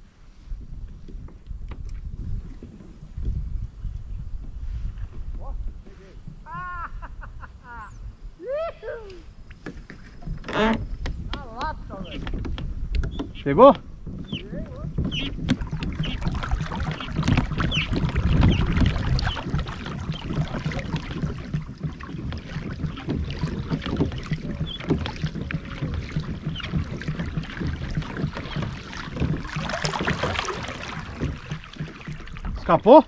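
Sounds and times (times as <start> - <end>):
water lapping against kayak hull: 0.0 - 8.4, 9.2 - 33.0
small knocks on kayak: 1.0 - 3.0, 9.5 - 13.4, 14.0 - 32.7.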